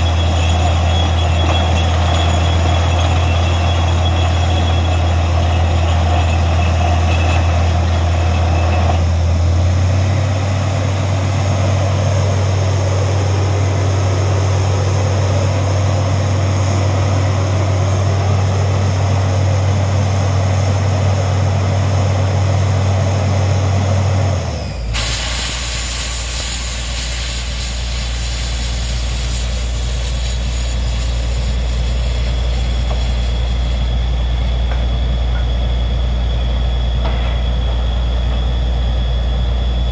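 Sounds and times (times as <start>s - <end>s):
drilling rig engine hum: 0.0s - 39.9s
compressed air hissing: 25.0s - 34.5s.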